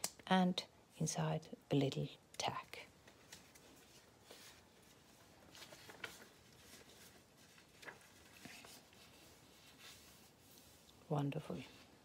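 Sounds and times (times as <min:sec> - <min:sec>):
paper pages rustling: 0:03.0 - 0:12.0.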